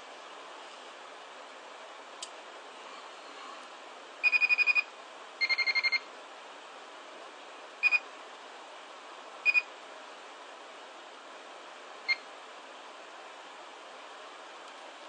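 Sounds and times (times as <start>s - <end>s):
electronic buzzer beeping: 4.2s - 4.8s, 5.4s - 6.0s.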